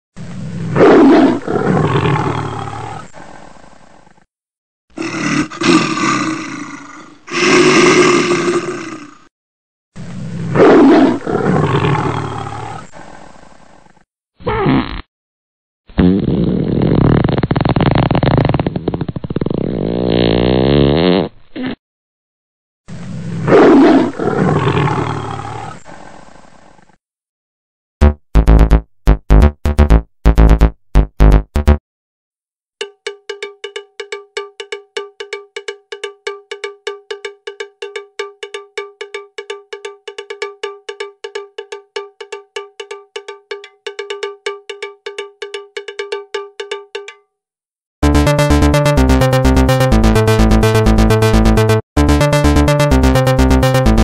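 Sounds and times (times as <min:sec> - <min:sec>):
big cat roaring: 0:00.7 - 0:03.1, 0:05.0 - 0:09.3, 0:10.5 - 0:13.0, 0:23.5 - 0:25.8
big cat growling: 0:00.7 - 0:03.2, 0:05.0 - 0:09.3, 0:23.5 - 0:25.8.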